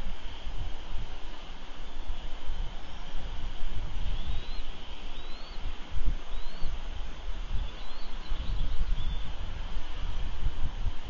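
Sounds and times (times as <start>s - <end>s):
wind buffeting microphone: 0.0s - 11.0s
bird chirping faintly: 4.1s - 6.8s, 7.5s - 9.4s.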